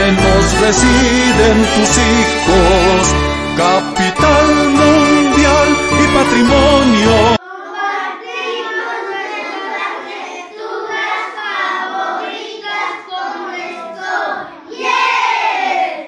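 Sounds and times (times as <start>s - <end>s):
children singing in unison: 7.2s - 16.0s.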